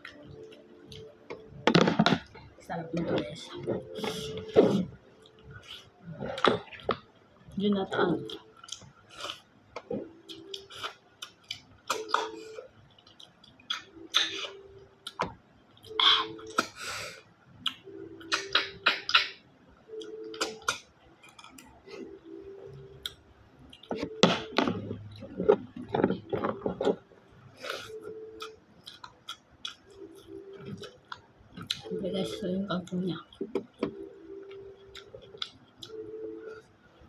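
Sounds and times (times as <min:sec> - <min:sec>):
chewing: 0:08.3 - 0:16.8, 0:27.6 - 0:31.9.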